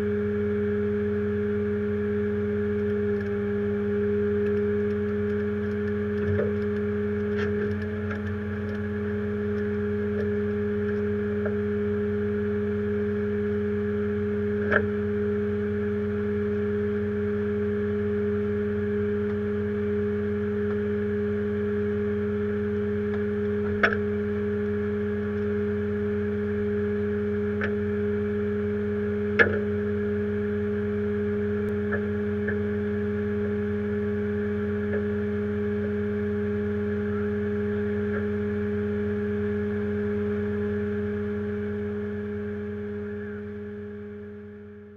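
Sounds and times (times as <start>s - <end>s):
truck engine humming: 0.0s - 44.9s.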